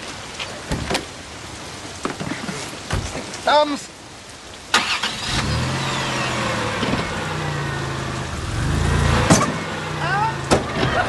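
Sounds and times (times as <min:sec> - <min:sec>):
car engine running and revving: 0:05.2 - 0:11.0.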